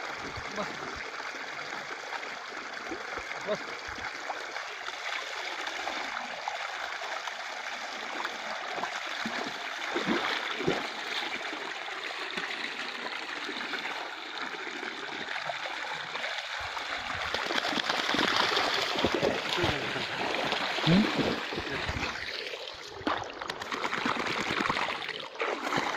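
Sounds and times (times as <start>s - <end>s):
water gushing and splattering: 8.0s - 25.9s.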